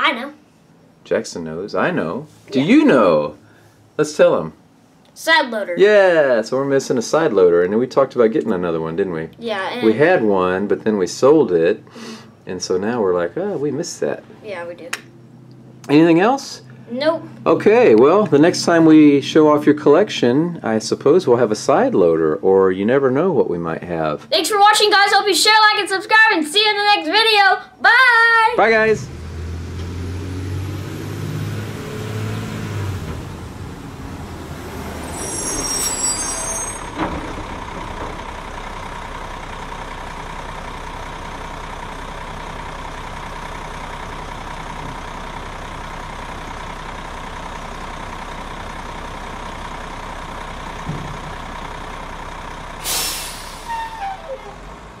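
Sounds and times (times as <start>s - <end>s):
diesel engine running: 8.5s - 24.0s, 28.6s - 55.0s
knocks: 50.8s - 51.4s
air hiss: 52.8s - 54.0s.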